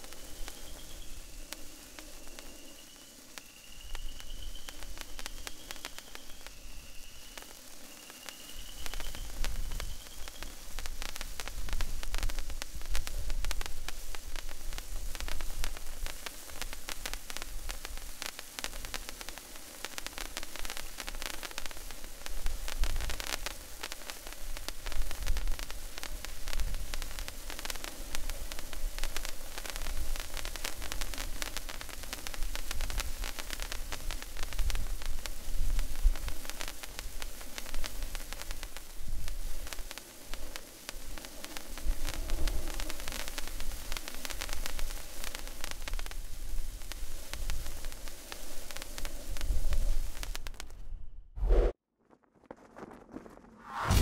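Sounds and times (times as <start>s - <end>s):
sparkler hissing and crackling: 0.0s - 50.8s, 53.7s - 54.0s
faint high chirp: 0.1s - 10.7s.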